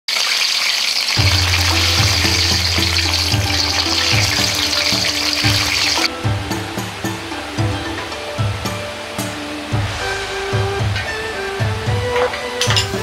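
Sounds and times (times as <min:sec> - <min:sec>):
spring rolls deep-frying: 0:00.1 - 0:06.1
background music with bass line: 0:01.2 - 0:13.0.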